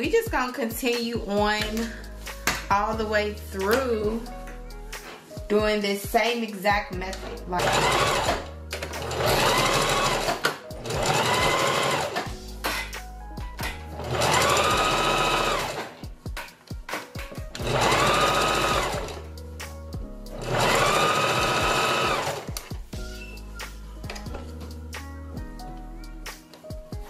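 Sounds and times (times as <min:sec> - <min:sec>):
sewing machine motor whining: 0:07.6 - 0:08.4, 0:09.0 - 0:12.2, 0:14.0 - 0:15.8, 0:17.6 - 0:19.1, 0:20.4 - 0:22.4.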